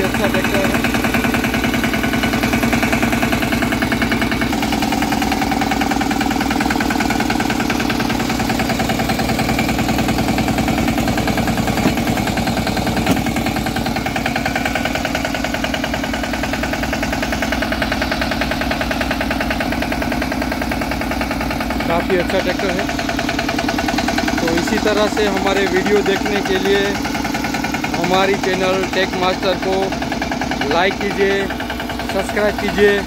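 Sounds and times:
diesel engine idling: 0:00.0 - 0:33.0.

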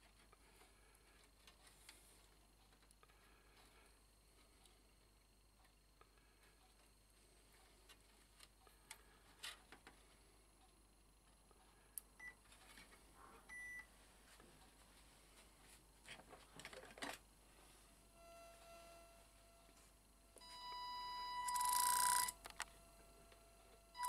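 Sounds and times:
short high beeps: 0:20.4 - 0:22.4.

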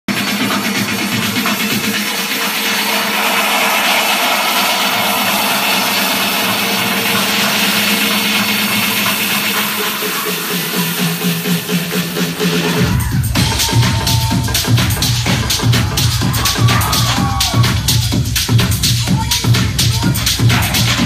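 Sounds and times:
loud techno over sound system: 0:00.1 - 0:21.0
rhythmic hits: 0:00.1 - 0:21.0
hissing noise wash: 0:02.1 - 0:10.0.

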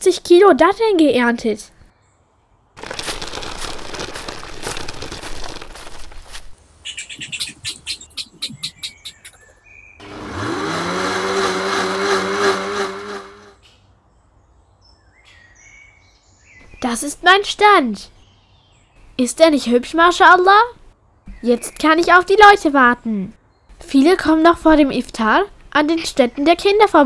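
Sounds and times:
plastic toy wheels rattling: 0:02.8 - 0:06.5
motor whirring: 0:10.0 - 0:13.6.

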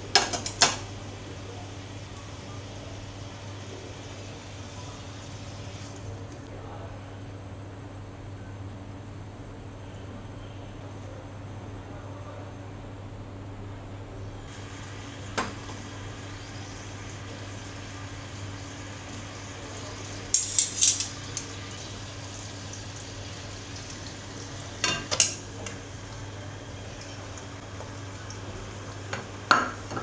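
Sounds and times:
sauce bubbling and sizzling: 0:01.7 - 0:06.1, 0:14.5 - 0:30.0.

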